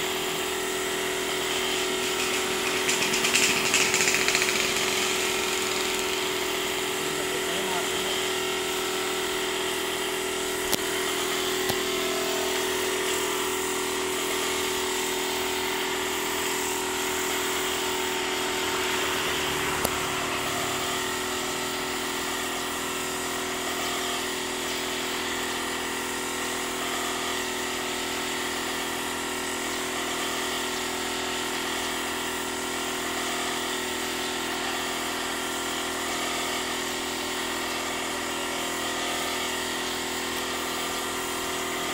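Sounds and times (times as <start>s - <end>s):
air compressor running: 0.0s - 41.9s
paint spray gun hissing: 0.1s - 13.8s
sharp clicks: 2.0s - 6.2s.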